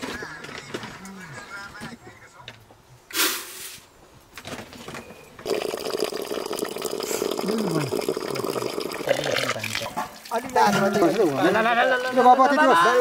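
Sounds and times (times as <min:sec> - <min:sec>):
water running into plastic bucket: 0:05.4 - 0:11.6.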